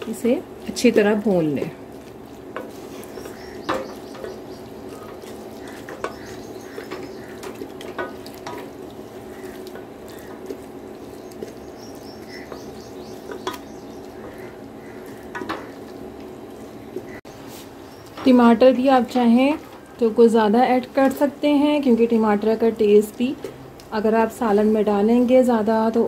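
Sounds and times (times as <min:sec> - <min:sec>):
wooden spoon scraping pot: 0:00.0 - 0:18.4
masala frying: 0:00.0 - 0:26.0.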